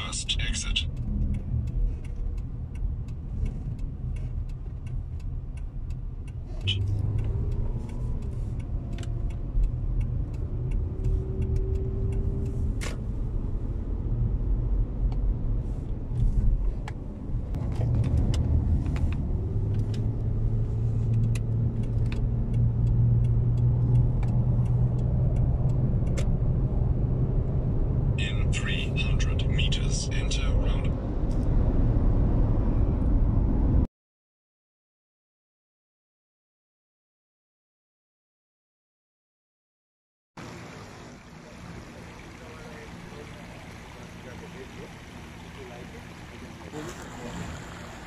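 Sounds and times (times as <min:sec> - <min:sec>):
car engine and road rumble: 0:00.0 - 0:33.9, 0:40.4 - 0:48.0.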